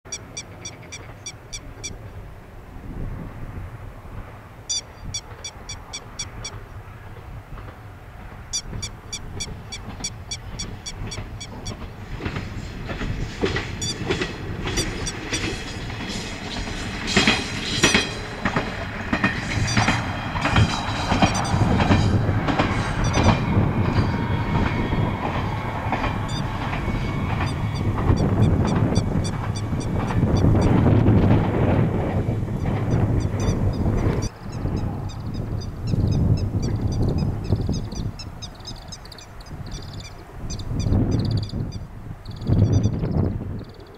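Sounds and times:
diesel railcar engine rumbling: 0.1s - 43.9s
wheels clacking over rail joints: 4.1s - 40.3s
high chirps: 4.7s - 6.6s.

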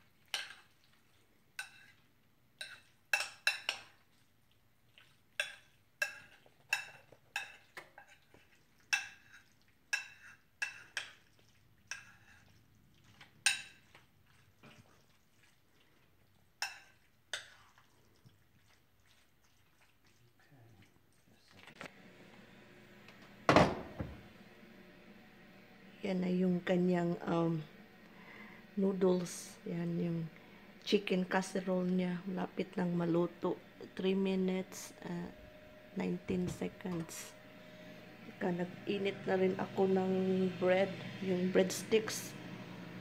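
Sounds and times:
spoon clinking against ceramic dish: 2.6s - 3.9s.

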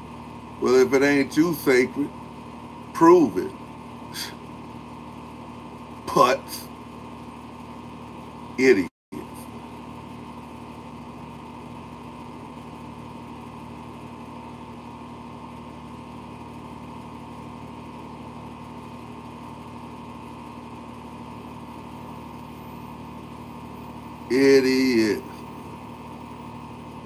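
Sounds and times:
steady machine hum: 0.0s - 27.0s.

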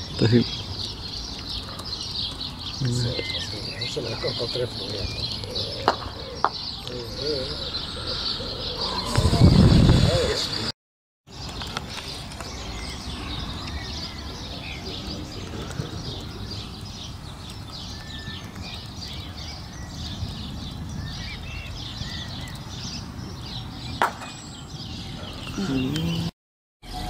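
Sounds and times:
birds chirping: 0.0s - 10.7s, 11.3s - 27.0s.

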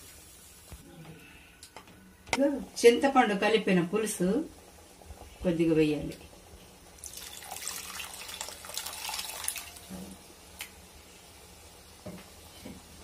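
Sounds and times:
juice splashing and dripping: 7.0s - 9.9s.

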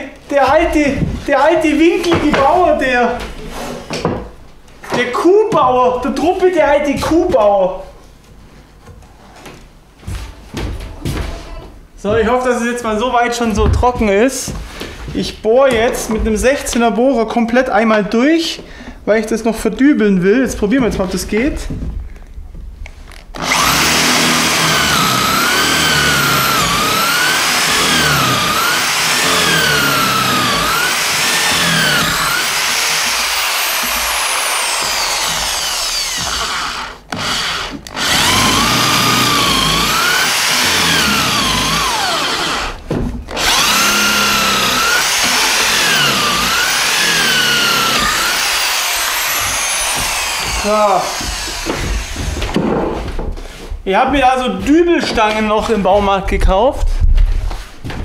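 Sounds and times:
electric drill boring into wood: 23.4s - 52.6s.

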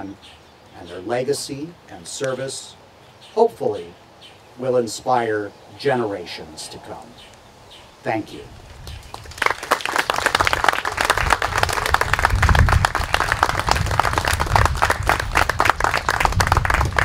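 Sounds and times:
audience applauding: 9.0s - 17.0s.

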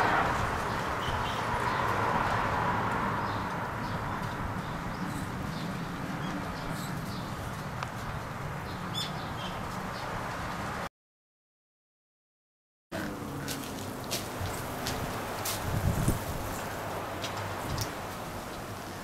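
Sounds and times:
small birds chirping: 0.6s - 2.0s, 3.2s - 10.2s.

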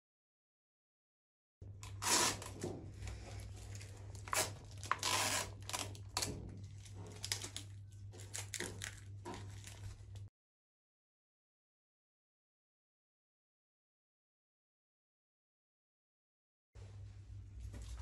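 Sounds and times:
low steady hum: 1.6s - 10.3s, 16.8s - 18.0s
sharp tearing crackles: 3.7s - 10.3s.

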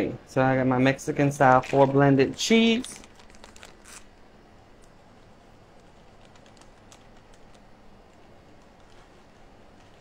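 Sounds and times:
plastic bag crinkling: 1.5s - 4.3s, 5.6s - 10.0s.

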